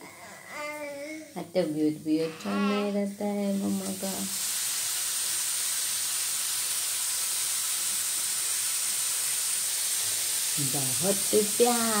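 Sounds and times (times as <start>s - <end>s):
steady hiss: 3.4s - 12.0s.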